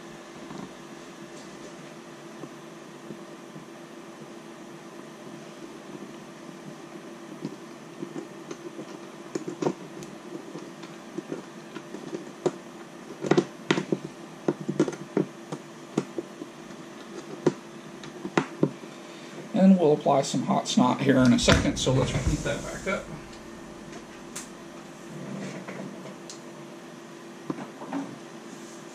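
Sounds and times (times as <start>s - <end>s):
steady hum: 15.5s - 27.4s.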